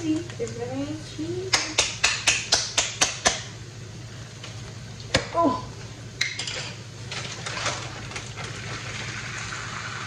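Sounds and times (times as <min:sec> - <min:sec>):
steady low hum: 0:00.0 - 0:10.0
dishes and utensils clattering: 0:06.2 - 0:07.9.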